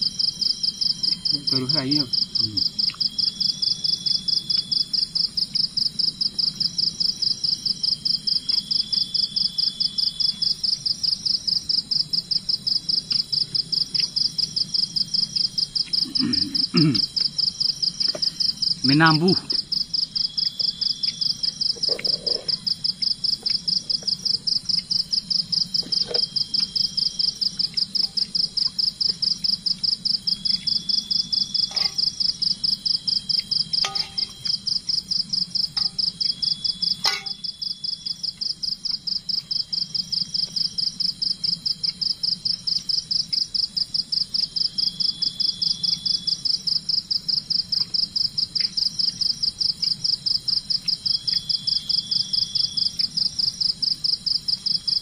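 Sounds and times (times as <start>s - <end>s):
shrill insect call pulsing: 0.0s - 55.0s
thin insect tone: 0.0s - 55.0s.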